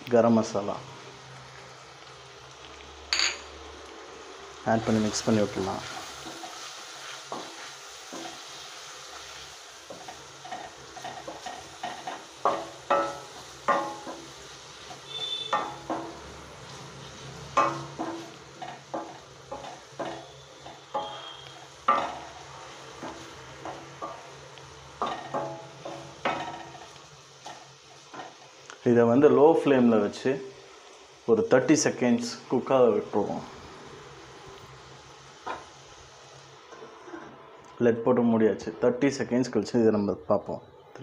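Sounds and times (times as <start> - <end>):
faint frying sizzle: 0.0 - 37.9
spoon knocking against pan: 9.9 - 14.2, 15.2 - 16.2, 17.6 - 21.3, 21.9 - 22.3, 25.0 - 26.7
spoon scraping a metal pan: 17.6 - 22.2.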